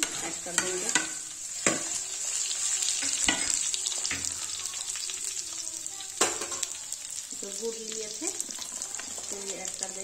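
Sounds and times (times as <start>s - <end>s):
food sizzling in hot oil: 0.0s - 10.0s
spoon knocking against pan: 6.2s - 6.7s.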